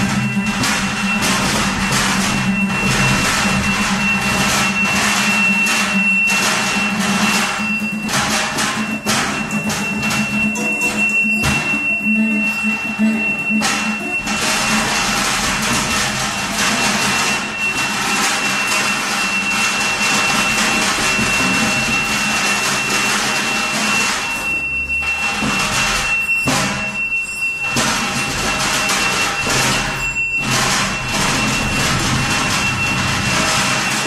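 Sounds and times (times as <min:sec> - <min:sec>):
high sustained tone: 0:00.0 - 0:34.0
noisy drone: 0:00.0 - 0:34.0.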